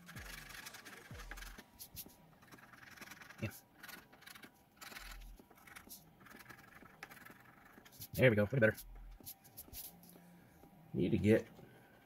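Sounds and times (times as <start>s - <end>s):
coin scraping a ticket: 0.0s - 6.6s.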